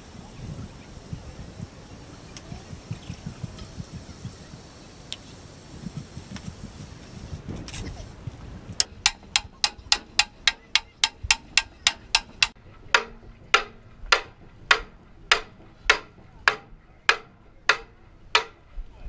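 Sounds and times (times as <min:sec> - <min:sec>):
hammer blows on iron tire: 0:08.8 - 0:18.5.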